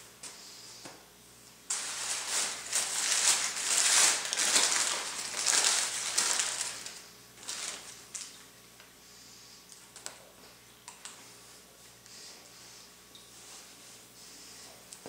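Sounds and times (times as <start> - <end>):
paper wrapper crinkling: 1.7 - 8.4.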